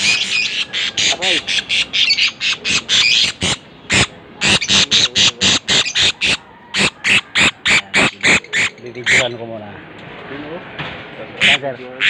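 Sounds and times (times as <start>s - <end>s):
parrots chirping shrilly: 0.0s - 9.4s.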